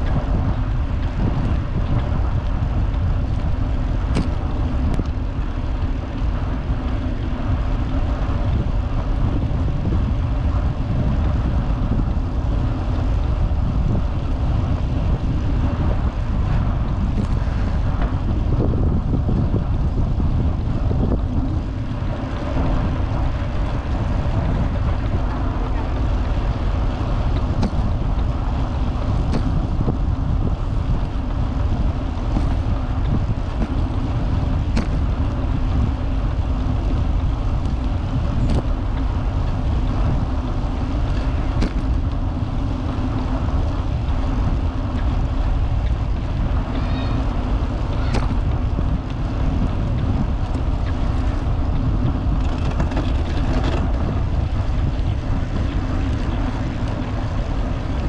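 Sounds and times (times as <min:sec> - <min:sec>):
bicycle clicks: 0:00.0 - 0:58.0
bicycle tyres rolling on trail: 0:00.0 - 0:58.0
wind buffeting microphone: 0:00.0 - 0:58.0.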